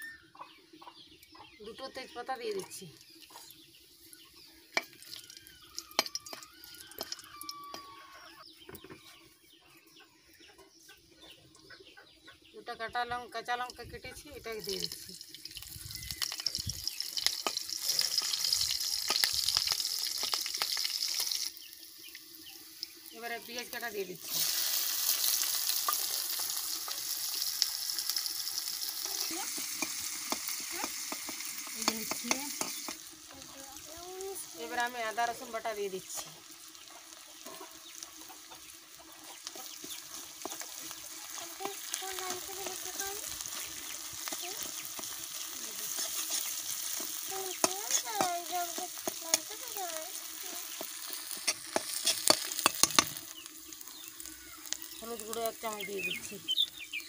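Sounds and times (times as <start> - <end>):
chickens clucking: 0.2 - 13.1, 36.2 - 56.9
spices sizzling in hot oil: 1.0 - 9.6, 12.6 - 57.0
spatula scraping and tapping pan: 17.2 - 18.4, 29.0 - 33.1, 39.2 - 49.8, 50.5 - 53.5.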